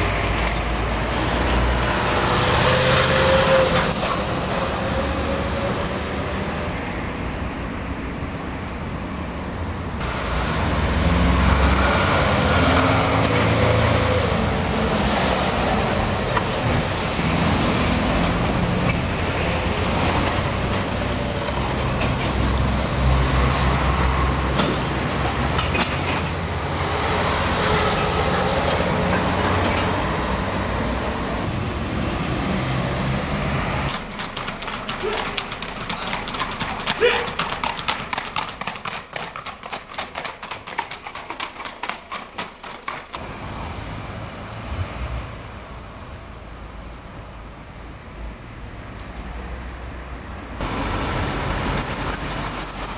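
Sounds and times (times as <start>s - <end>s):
car engines: 0.0s - 52.9s
tyre noise: 33.8s - 43.2s.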